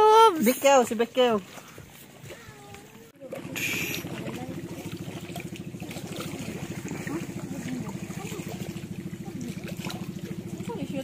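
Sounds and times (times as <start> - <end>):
boat engine put-put: 2.2 - 11.0.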